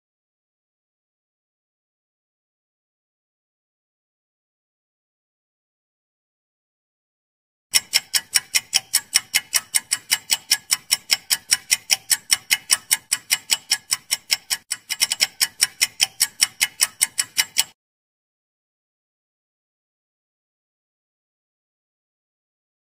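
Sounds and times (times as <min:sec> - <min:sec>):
fast clock-like ticks: 0:07.7 - 0:17.8.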